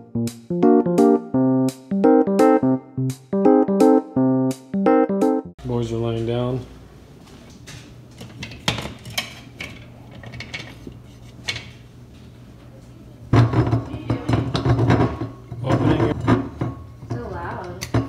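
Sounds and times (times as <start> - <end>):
dishes and cutlery clinking: 8.2 - 11.8, 13.4 - 18.0.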